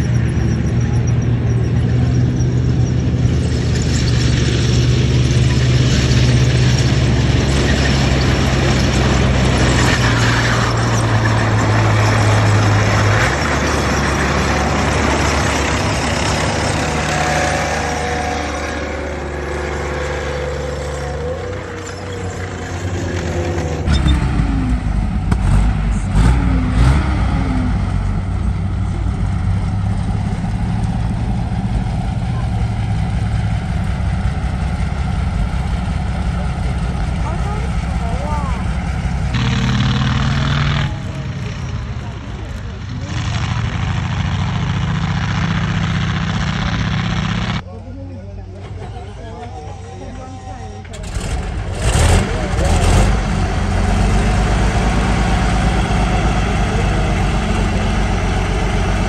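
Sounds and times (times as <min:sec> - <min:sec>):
tank engines droning: 0:00.0 - 0:59.0
tracked vehicles rumbling past: 0:00.0 - 0:59.0.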